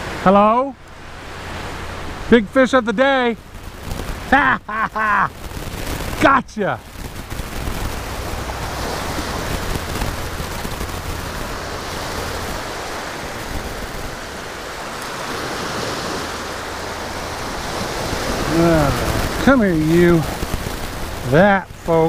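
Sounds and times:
ocean surf breaking on beach: 0:00.0 - 0:22.0
wind buffeting microphone: 0:05.0 - 0:22.0.

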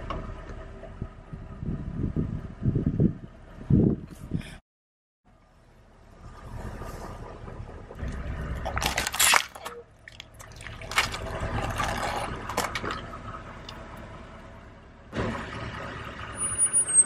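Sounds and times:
low rumble of slow car: 0:00.0 - 0:04.6, 0:05.2 - 0:17.0
water spilling: 0:08.6 - 0:13.8
plastic crinkling and squishing: 0:08.7 - 0:12.9.

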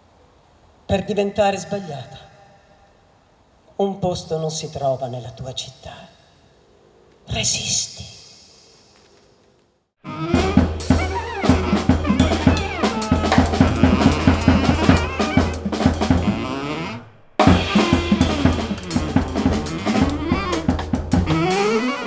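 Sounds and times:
saxophone: 0:10.0 - 0:22.0
drum kit playing a busy groove: 0:10.1 - 0:16.6, 0:17.4 - 0:22.0
steady bass note: 0:10.1 - 0:22.0.

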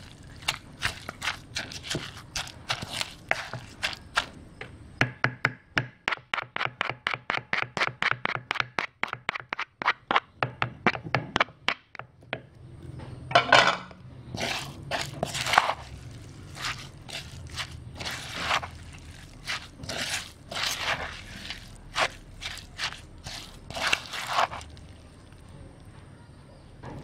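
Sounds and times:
spatula scraping wet mixture: 0:00.0 - 0:04.4, 0:14.3 - 0:25.5
pestle pounding in mortar: 0:00.3 - 0:04.3, 0:05.0 - 0:12.1, 0:14.4 - 0:24.7.

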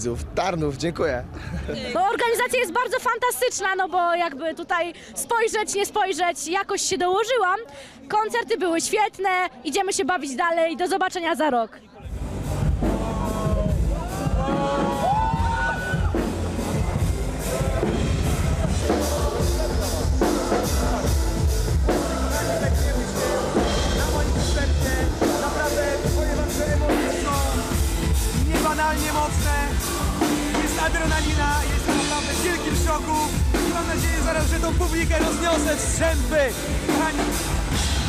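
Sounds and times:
drum kit beat: 0:12.2 - 0:38.0
pop song singing: 0:12.8 - 0:38.0.

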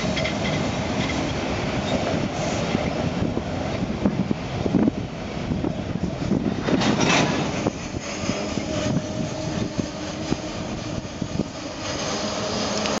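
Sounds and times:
clicks of wheels on rail: 0:00.0 - 0:03.0, 0:06.6 - 0:10.6, 0:11.3 - 0:13.0
freight train rolling past: 0:00.0 - 0:13.0.

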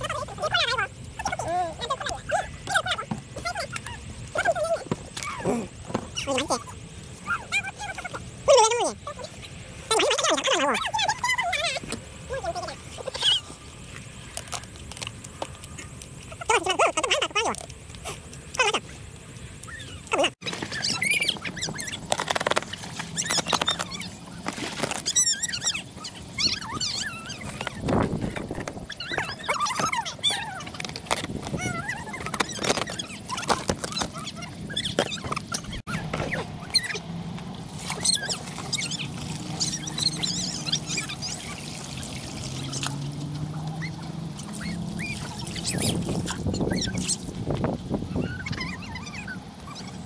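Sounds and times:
small birds chirping: 0:00.0 - 0:37.1, 0:37.7 - 0:50.0
plastic packaging crinkling: 0:21.5 - 0:25.4, 0:30.6 - 0:34.3.

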